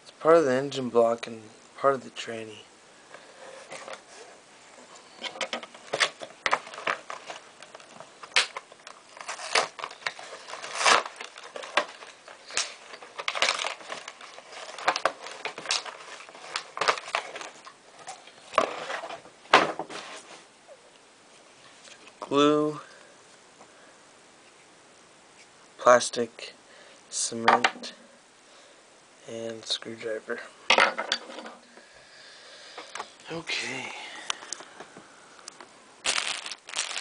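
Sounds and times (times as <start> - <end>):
plastic packaging crinkling: 5.1 - 19.2, 36.0 - 37.0.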